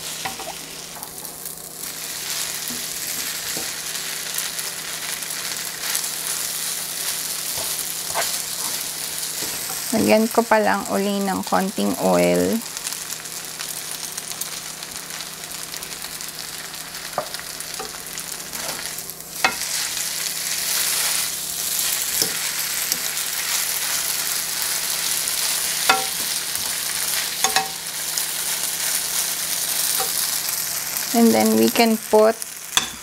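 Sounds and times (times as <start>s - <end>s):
food sizzling in a wok: 0.0s - 33.0s
utensils clicking on a pan: 0.2s - 1.1s, 18.6s - 19.9s, 21.8s - 24.0s, 24.7s - 28.0s, 29.9s - 30.4s, 32.7s - 33.0s.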